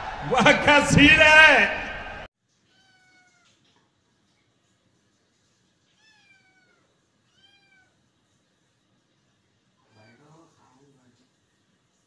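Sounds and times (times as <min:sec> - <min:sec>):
kitten meowing faintly: 0:02.7 - 0:03.5, 0:06.0 - 0:08.0, 0:09.8 - 0:10.4.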